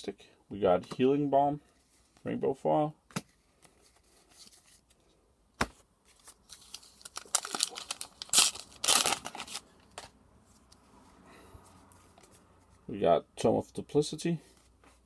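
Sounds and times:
foil wrapper crinkling and tearing: 6.2 - 10.1.

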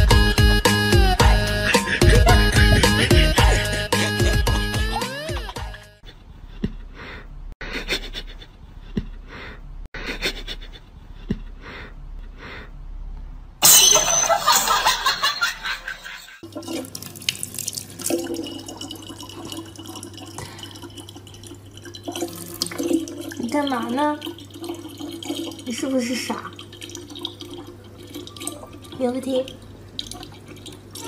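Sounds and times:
faucet filling plastic bottle: 16.4 - 31.0.

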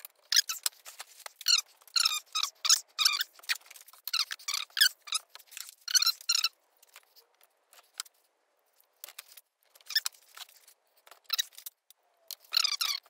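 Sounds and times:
foam squeaking on metal frame: 0.2 - 6.5, 9.8 - 10.3, 12.3 - 13.0.

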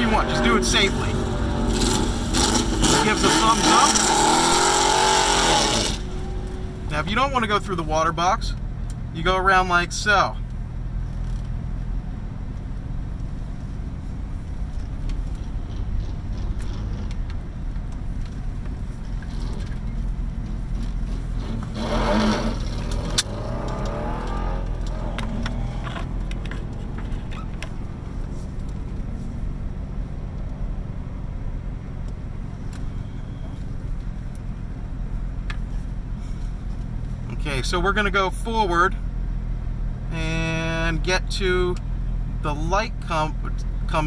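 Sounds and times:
engine revving: 0.0 - 7.2, 20.8 - 27.9
car engine idling: 0.0 - 44.0.

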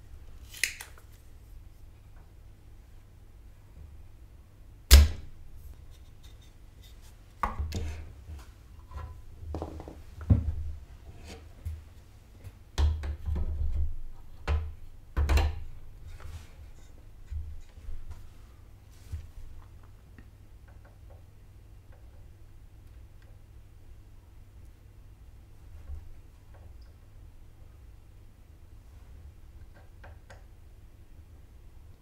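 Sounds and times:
desoldering pump snapping: 0.4 - 1.1.

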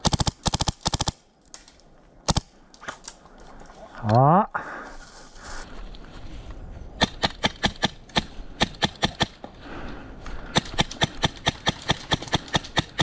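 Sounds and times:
airsoft rifle rapid shots: 0.0 - 1.2, 2.3 - 2.5, 7.0 - 9.4, 10.5 - 13.0.

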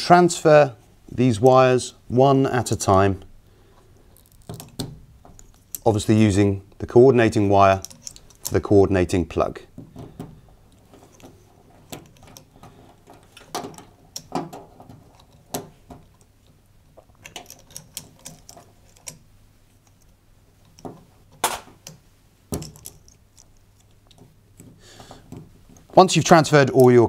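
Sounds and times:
connectors clicking on terminals: 7.7 - 8.8, 9.7 - 27.0.

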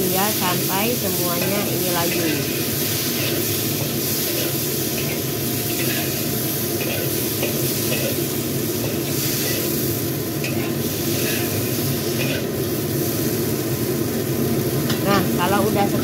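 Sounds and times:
vegetables sizzling in a wok: 0.0 - 16.0
metal spatula scraping pan: 1.4 - 9.7, 10.4 - 12.5.

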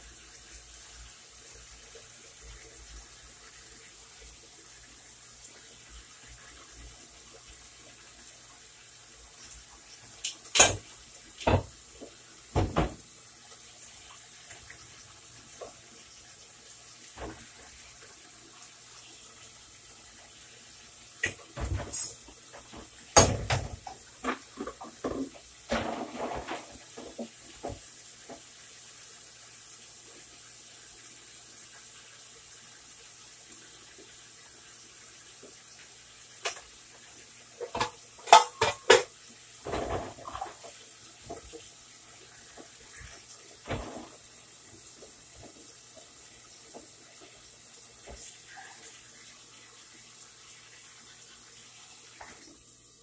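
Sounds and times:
faint steady hiss: 0.0 - 53.0
saucepans clattering on stove: 10.2 - 13.1, 21.2 - 28.4, 37.6 - 41.5.

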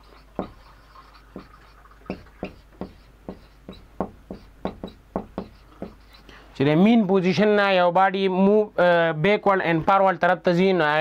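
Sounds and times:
marker writing on whiteboard: 0.0 - 6.3.

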